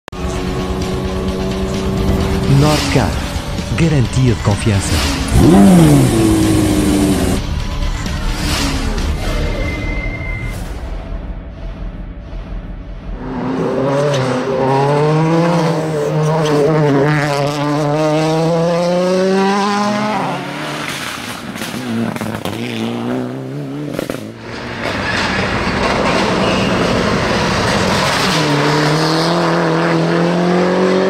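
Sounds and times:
rally car engine at high revs: 0:00.1 - 0:07.4, 0:13.2 - 0:31.0.

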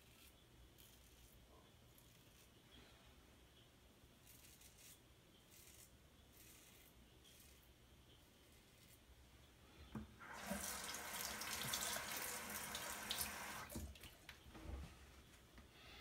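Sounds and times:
water running from sink tap: 0:10.2 - 0:14.0.

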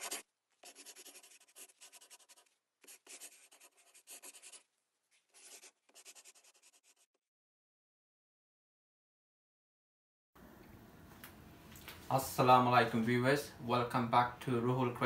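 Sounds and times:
pen scribbling on paper: 0:00.0 - 0:04.6, 0:05.3 - 0:07.2.

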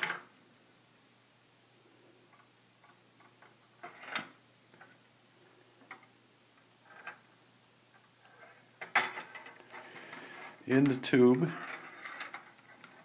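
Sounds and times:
metal ball rolling in plastic maze: 0:03.3 - 0:04.9, 0:06.8 - 0:07.3, 0:08.2 - 0:13.0.

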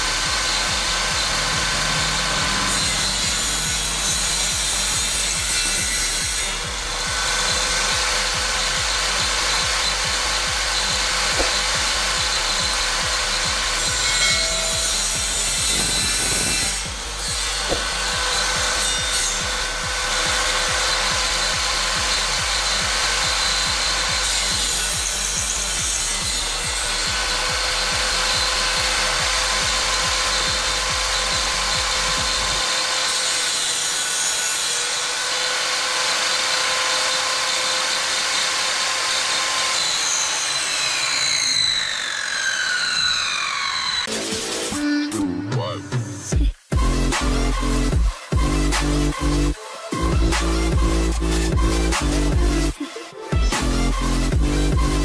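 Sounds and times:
saw whines falling in pitch: 0:00.0 - 0:33.5, 0:34.8 - 0:45.2
table saw cutting wood: 0:00.0 - 0:45.4, 0:46.1 - 0:55.0.

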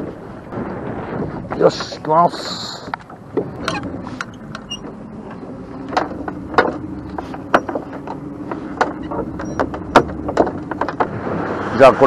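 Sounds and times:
boat motor running: 0:00.0 - 0:12.0
net floats knocking on hull: 0:05.9 - 0:11.4.

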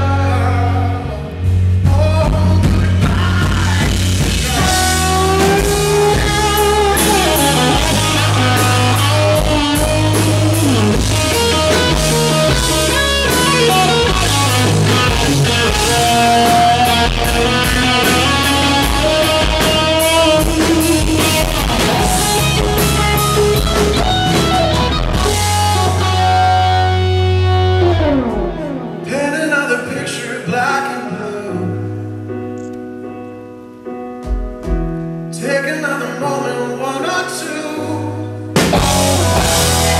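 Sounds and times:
man singing lead vocal: 0:00.0 - 0:12.6, 0:13.2 - 0:22.2, 0:28.8 - 0:32.0, 0:35.3 - 0:39.9
live rock band playing: 0:00.0 - 0:39.9
held chord notes: 0:03.9 - 0:29.9, 0:38.5 - 0:39.9.

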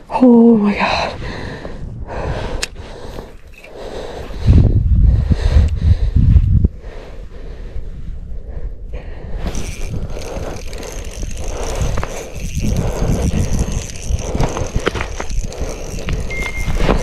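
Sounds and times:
fishing reel gears whirring and clicking: 0:03.0 - 0:04.5, 0:09.4 - 0:17.0.

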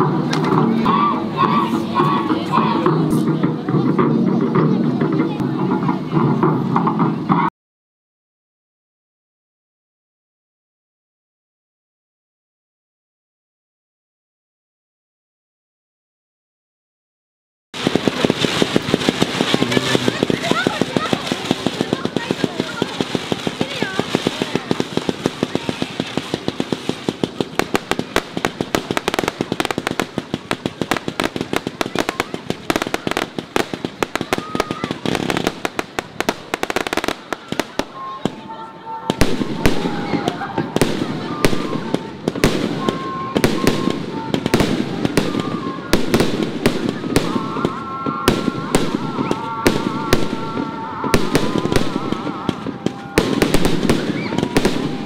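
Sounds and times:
fireworks popping and crackling: 0:00.0 - 0:07.5, 0:17.8 - 0:55.0
firework shells bursting: 0:17.8 - 0:38.0.

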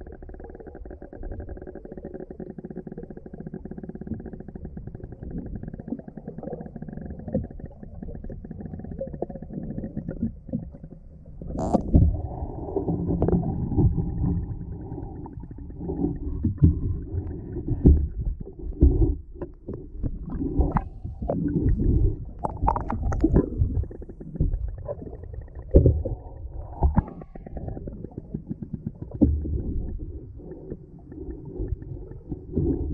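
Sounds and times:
muffled underwater water rumble: 0:00.0 - 0:32.9
dull underwater knocks: 0:16.2 - 0:25.0.

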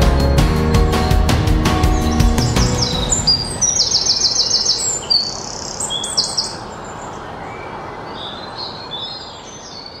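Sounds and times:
small birds chirping: 0:00.6 - 0:10.0
steady background hiss: 0:03.2 - 0:10.0.

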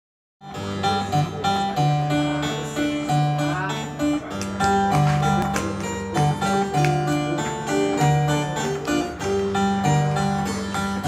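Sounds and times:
medieval ensemble music: 0:04.2 - 0:11.0.

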